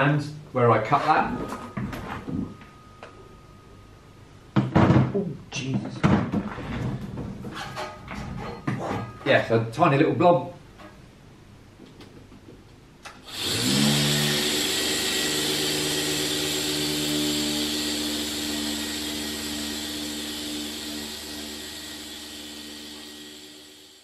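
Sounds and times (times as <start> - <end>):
mini polisher whining: 13.2 - 24.0.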